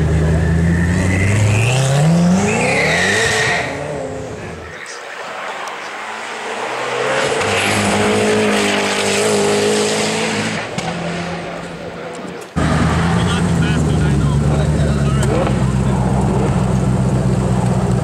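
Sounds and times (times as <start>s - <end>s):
tyre squeal: 0.0s - 3.8s
car engine revving hard: 0.0s - 4.5s, 6.5s - 11.6s, 12.6s - 18.0s.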